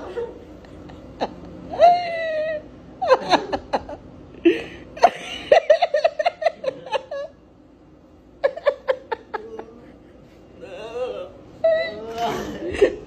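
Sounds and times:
man laughing: 3.0s - 7.4s, 8.4s - 13.0s.

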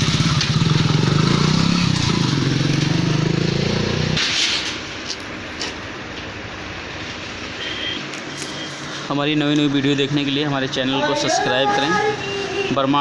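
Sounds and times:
motorcycle engine running: 0.0s - 4.2s.

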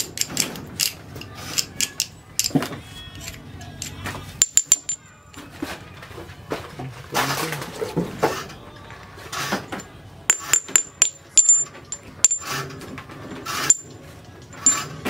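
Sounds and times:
sharp metallic clinks: 3.2s - 5.0s, 9.8s - 12.7s, 13.5s - 15.0s.

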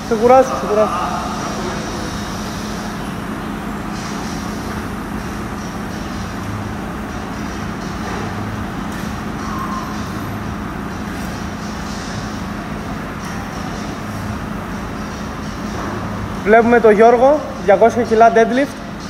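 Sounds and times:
even rushing noise: 0.0s - 7.3s
mechanical hum: 0.0s - 19.0s.

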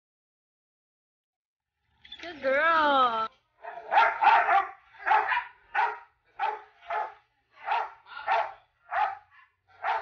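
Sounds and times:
dog barking: 3.6s - 10.0s.

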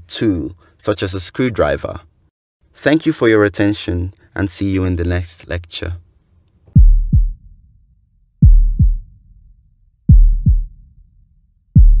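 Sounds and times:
heartbeat thumps: 6.8s - 7.6s, 8.4s - 9.5s, 10.1s - 11.0s, 11.7s - 12.0s.

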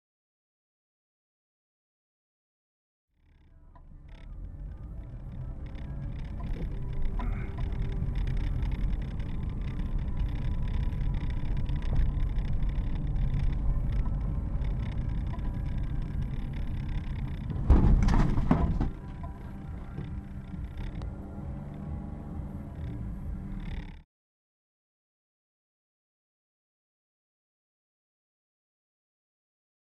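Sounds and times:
engine and road rumble: 3.2s - 24.0s.

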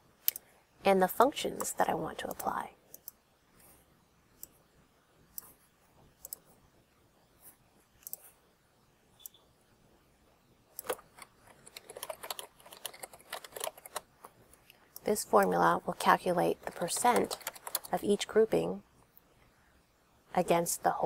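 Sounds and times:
mouse clicks: 8.0s - 8.3s, 9.2s - 9.4s
keyboard typing: 10.7s - 18.5s.

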